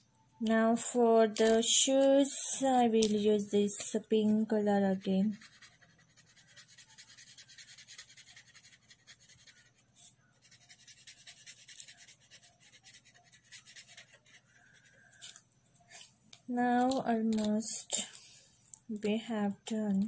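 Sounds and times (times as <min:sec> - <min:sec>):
pen scribbling on paper: 0:04.2 - 0:09.8, 0:10.4 - 0:15.0.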